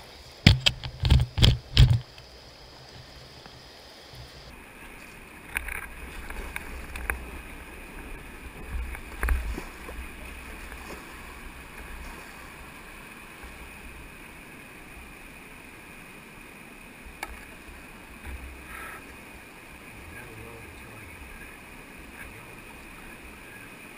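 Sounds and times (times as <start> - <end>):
rushing water: 0.0 - 23.9
paddle knocks and splashes: 8.0 - 12.6.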